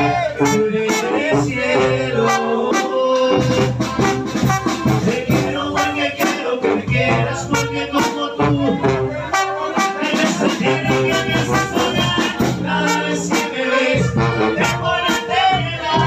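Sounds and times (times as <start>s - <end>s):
man singing into microphone: 0.0s - 3.7s, 5.0s - 16.0s
latin music: 0.0s - 16.0s.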